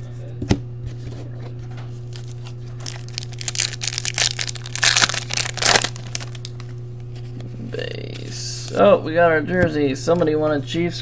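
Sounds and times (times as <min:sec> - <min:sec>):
steady low hum: 0:00.0 - 0:11.0
foil wrapper crinkling: 0:02.1 - 0:06.7.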